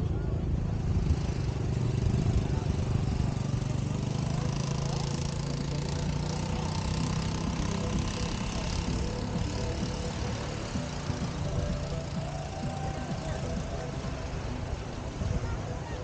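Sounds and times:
dense background noise: 0.0 - 16.0
faint voices: 0.0 - 16.0.

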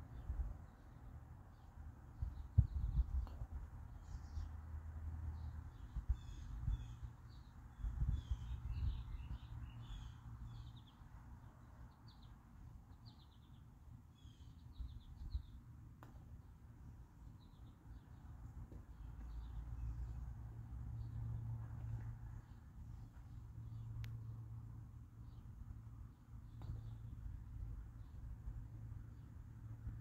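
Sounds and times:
small birds chirping: 0.0 - 4.7, 5.3 - 29.4
low outdoor rumble: 14.8 - 30.0.

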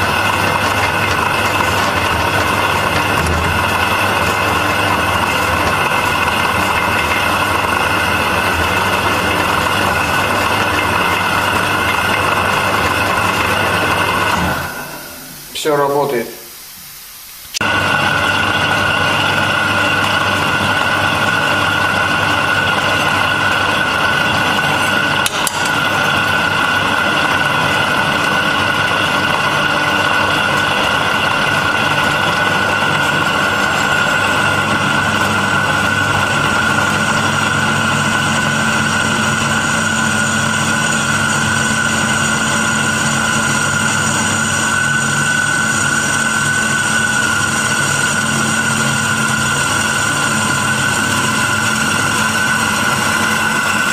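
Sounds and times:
drill press motor whining: 0.0 - 15.2, 17.6 - 53.9.

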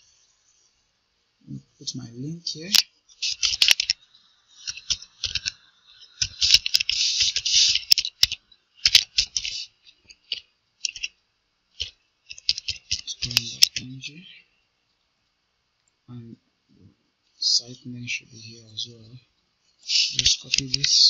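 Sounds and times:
computer keyboard typing: 4.6 - 11.1, 11.8 - 13.9.

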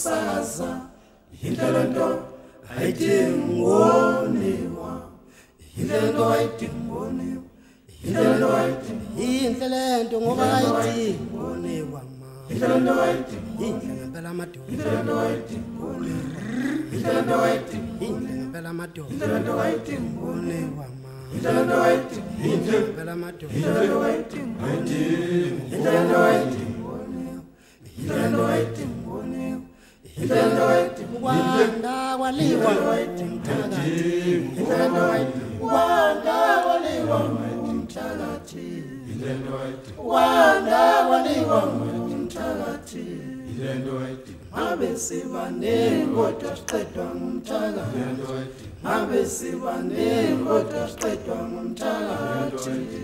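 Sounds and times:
unaccompanied choir singing: 0.0 - 53.0.

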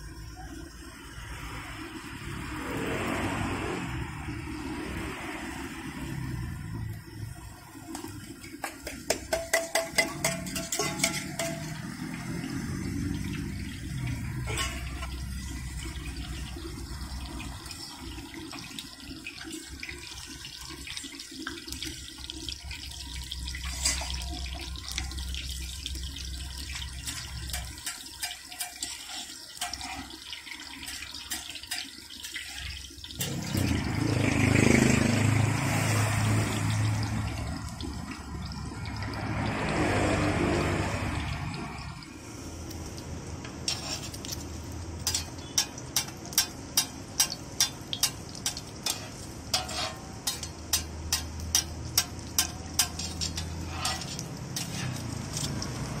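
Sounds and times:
hot oil sizzling and crackling: 0.0 - 56.0.

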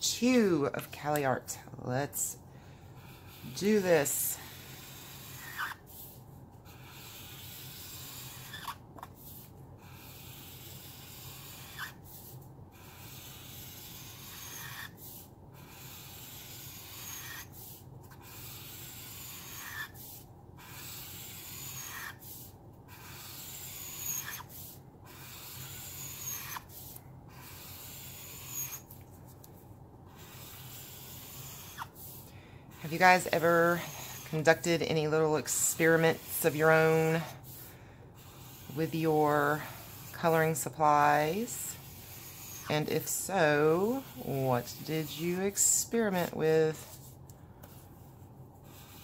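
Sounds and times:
marker scratching on paper: 3.0 - 49.0
marker tip squeak: 5.0 - 5.8, 6.8 - 8.8, 10.1 - 12.0, 12.9 - 17.5, 18.2 - 22.4, 23.0 - 28.9, 30.2 - 32.0.

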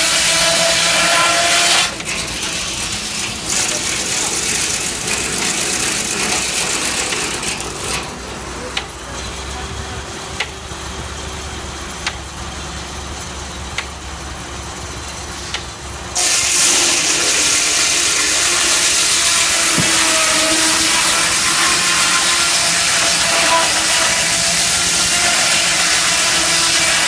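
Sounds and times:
saw cutting log: 0.0 - 9.5, 15.4 - 27.0
circular saw blade humming: 16.2 - 27.0.

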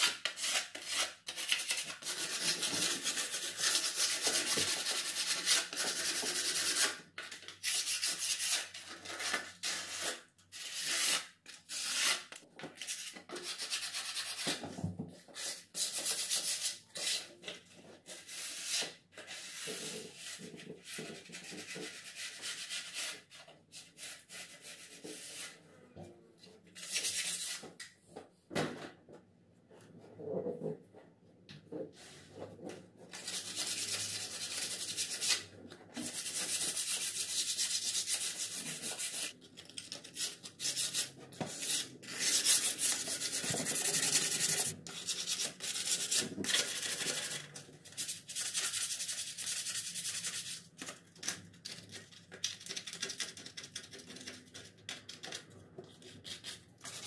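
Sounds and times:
sandpaper rubbing wood: 33.2 - 35.4, 36.1 - 39.3, 40.2 - 50.6.

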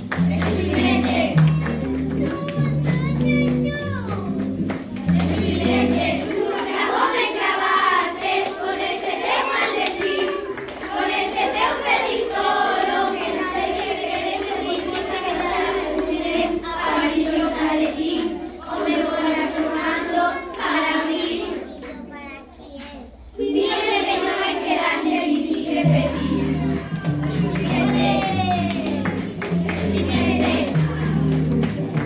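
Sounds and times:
hands clapping: 0.0 - 7.2, 9.5 - 14.0, 25.2 - 32.0
children singing without words: 0.0 - 22.1, 23.2 - 32.0.

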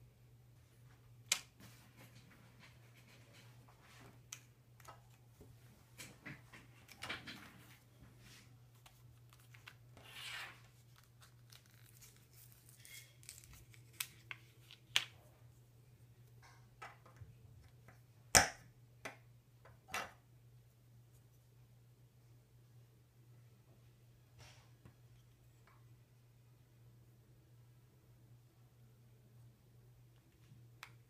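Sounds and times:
blister pack crinkling and tearing: 10.8 - 15.0.

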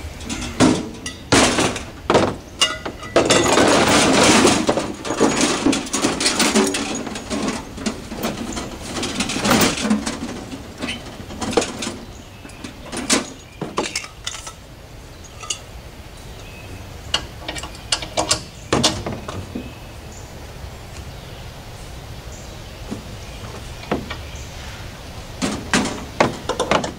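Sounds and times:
gear knocking and rustling: 0.0 - 14.6, 25.3 - 26.9.

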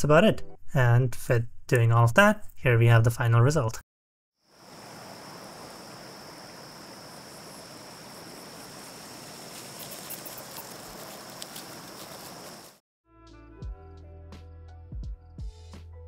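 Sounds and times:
high insect trill: 4.4 - 12.8.

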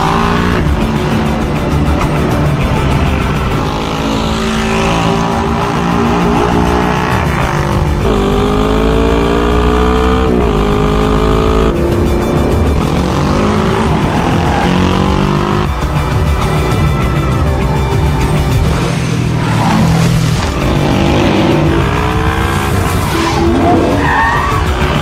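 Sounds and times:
engines revving at speed: 0.0 - 16.8, 18.6 - 25.0
film score music: 0.0 - 25.0.

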